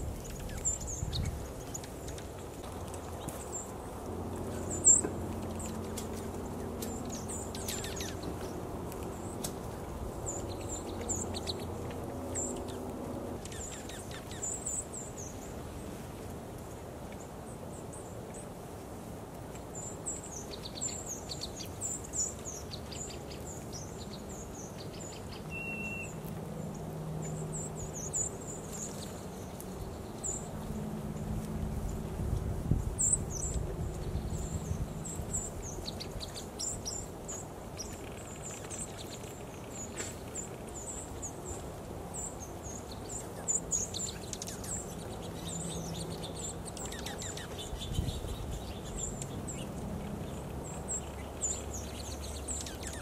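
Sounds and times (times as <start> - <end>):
high bird chip notes: 25.4 - 26.3.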